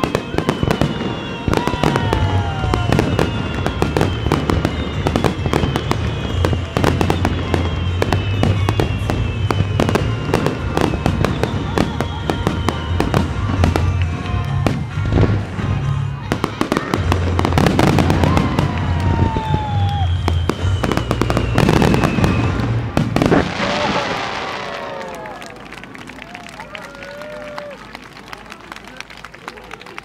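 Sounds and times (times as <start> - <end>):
firework whistles sliding down: 0.0 - 13.5, 17.5 - 25.2.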